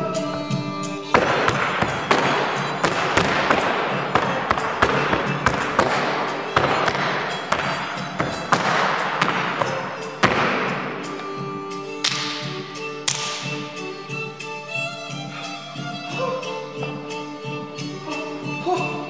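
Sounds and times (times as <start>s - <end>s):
boot stamps on stage floor: 1.1s - 11.4s.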